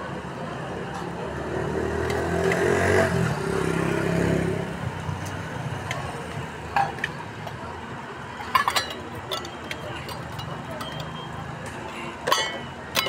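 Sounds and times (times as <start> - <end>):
vehicle engine passing by: 1.2 - 5.0.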